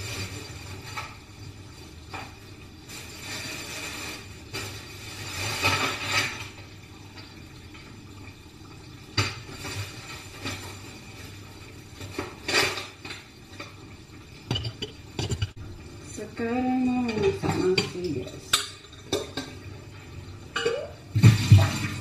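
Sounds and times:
dishes and cutlery clinking: 14.5s - 15.6s, 20.5s - 21.0s.

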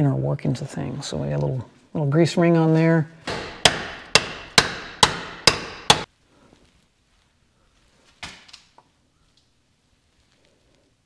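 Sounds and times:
hammer striking metal tool: 3.2s - 6.1s.

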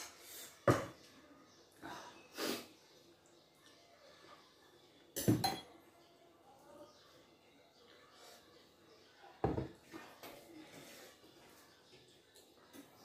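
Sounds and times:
breathy sniffs: 2.0s - 2.8s.

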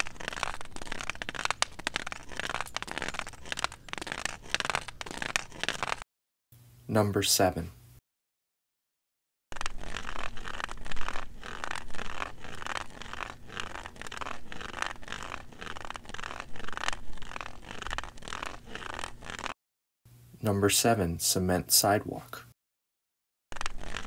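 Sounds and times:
cane tip scraping on concrete: 0.0s - 6.0s, 9.5s - 19.6s, 23.5s - 24.0s.

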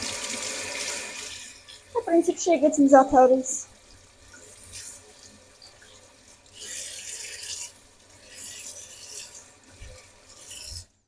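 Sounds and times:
water splashing into sink: 0.0s - 2.4s
vegetables rubbed under running tap: 0.0s - 11.0s.

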